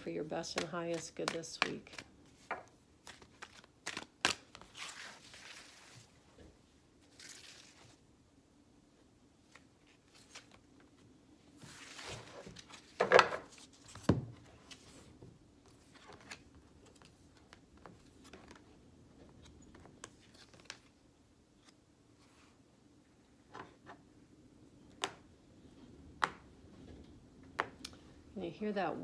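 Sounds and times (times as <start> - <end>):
cards rustling: 0.2 - 6.0, 9.4 - 11.0, 15.7 - 21.0.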